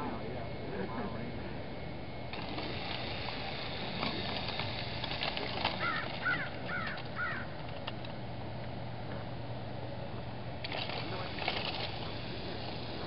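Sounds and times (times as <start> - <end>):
steady low hum: 0.0 - 13.0
crow cawing: 5.7 - 7.6.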